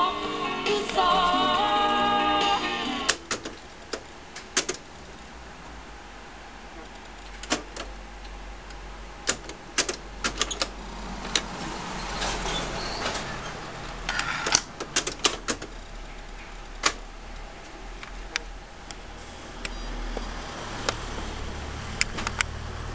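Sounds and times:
cassette door springing open: 0:03.0 - 0:04.9, 0:07.3 - 0:08.0, 0:09.2 - 0:11.6, 0:14.1 - 0:15.7
cassette deck clicks and clunks: 0:03.1 - 0:04.8, 0:09.3 - 0:10.7.

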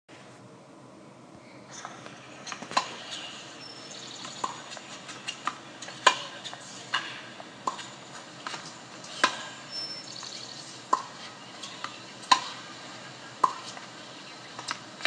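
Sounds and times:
tennis racket striking ball: 0:04.4 - 0:09.6, 0:10.9 - 0:12.6, 0:13.4 - 0:13.8.

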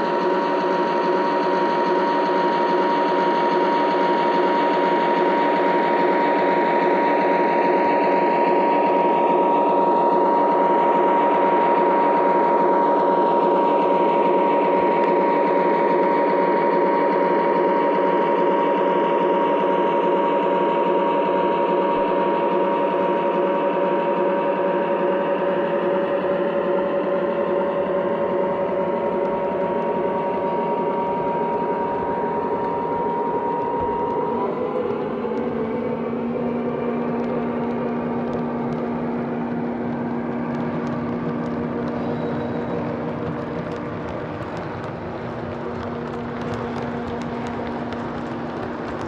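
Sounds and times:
model locomotive whirring: 0:00.0 - 0:49.0.

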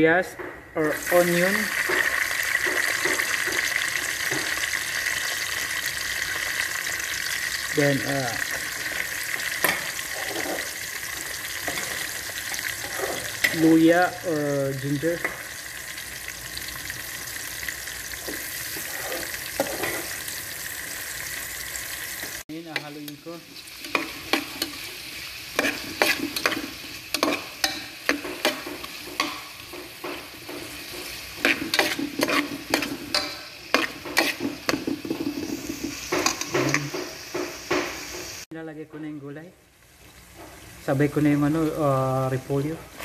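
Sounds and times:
food sizzling in hot oil: 0:00.8 - 0:38.5
metal spatula scraping pot: 0:08.5 - 0:13.8, 0:18.2 - 0:20.3, 0:22.7 - 0:37.0.

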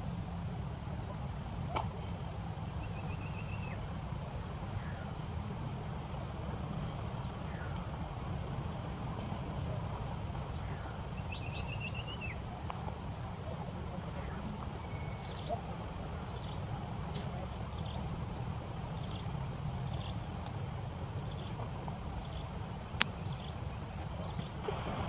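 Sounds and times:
birds calling: 0:10.3 - 0:12.5, 0:14.1 - 0:20.3, 0:21.2 - 0:25.0.

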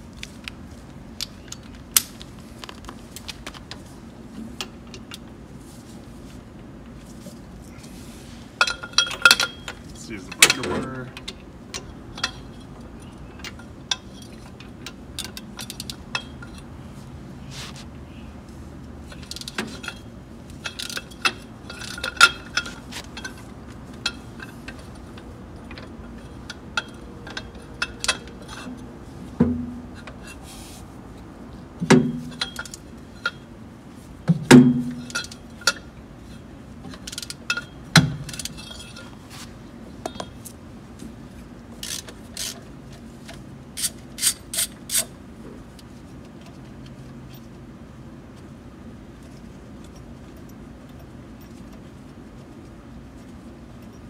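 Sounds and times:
ratchet clicks: 0:41.8 - 0:42.6.

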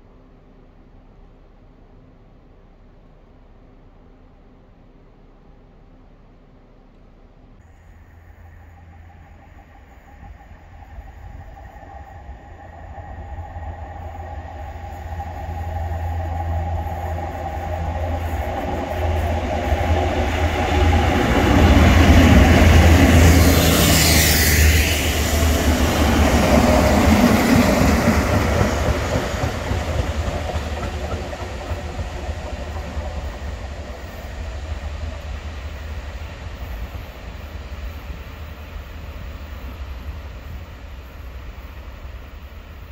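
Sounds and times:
diesel locomotive passing: 0:07.5 - 0:42.9.

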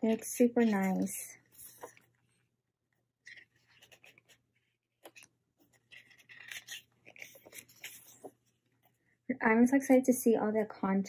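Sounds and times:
photo book pages rustling: 0:00.0 - 0:02.5, 0:03.2 - 0:09.0
page turning: 0:00.1 - 0:02.2, 0:03.2 - 0:08.5.

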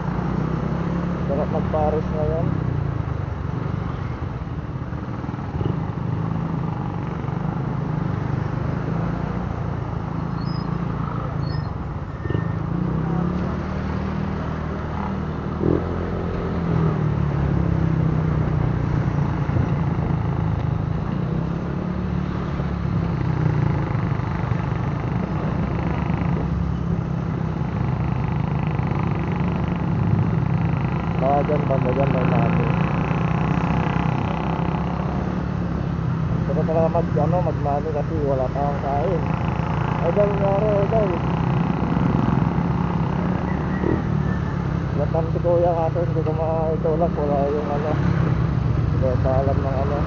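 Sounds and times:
scooter engine running: 0:12.0 - 0:48.2.

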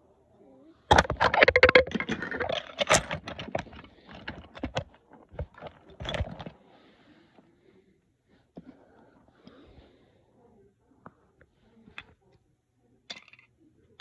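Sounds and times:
small hard objects clattering: 0:00.9 - 0:06.5.

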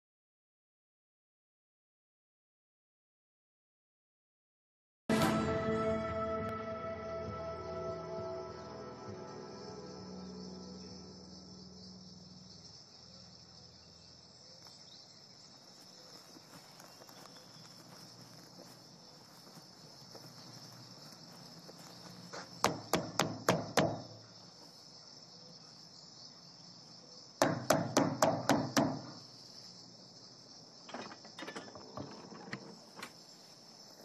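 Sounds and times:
crickets chirping: 0:05.8 - 0:34.0
knocking on a door: 0:22.6 - 0:24.1, 0:27.4 - 0:29.2.

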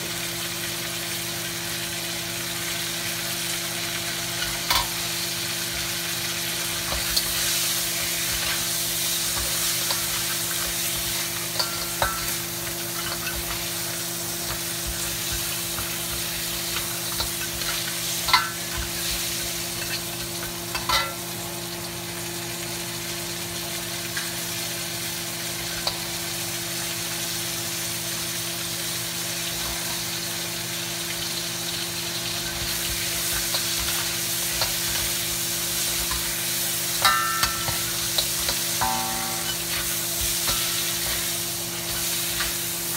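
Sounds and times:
crabs sizzling in oil: 0:00.0 - 0:42.9
spatula clinking on wok: 0:09.4 - 0:13.7, 0:20.7 - 0:21.2, 0:37.0 - 0:41.3.

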